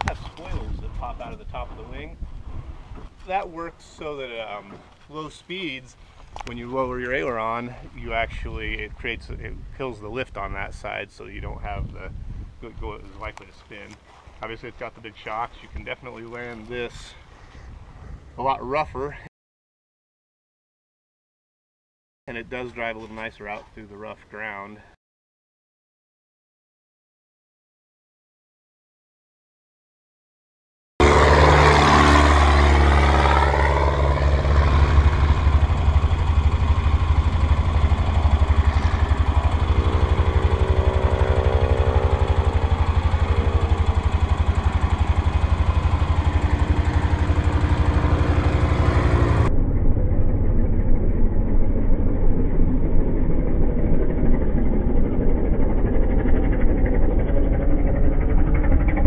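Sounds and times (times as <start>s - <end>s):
propeller plane flying past: 31.0s - 59.0s.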